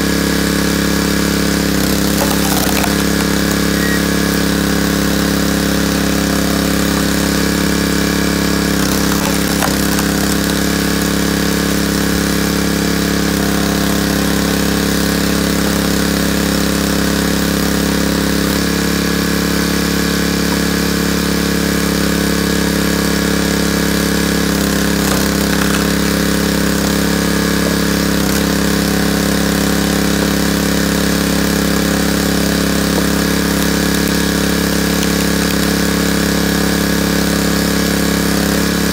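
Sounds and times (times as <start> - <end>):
small gasoline engine running: 0.0 - 38.9.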